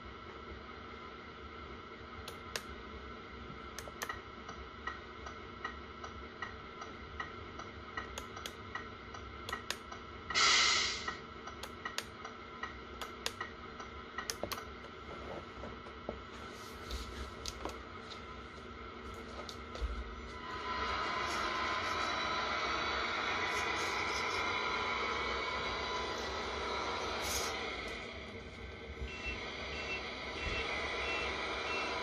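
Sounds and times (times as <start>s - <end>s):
air hiss: 10.3s - 11.2s, 20.4s - 28.3s
sharp clicks: 11.5s - 13.5s.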